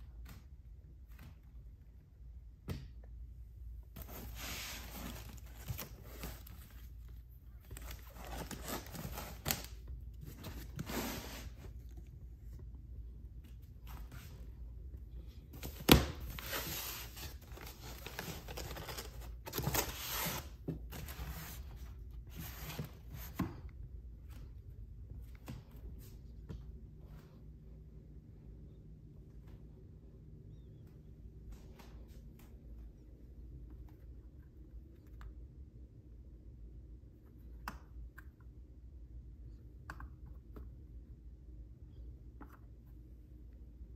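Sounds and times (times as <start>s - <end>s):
foam packing rustling and scraping: 7.8s - 9.7s.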